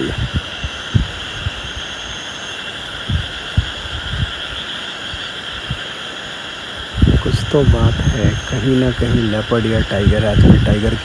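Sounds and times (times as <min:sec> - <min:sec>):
night insects chorus: 0:00.0 - 0:11.0
soft low thumps: 0:00.1 - 0:01.6, 0:03.0 - 0:04.3.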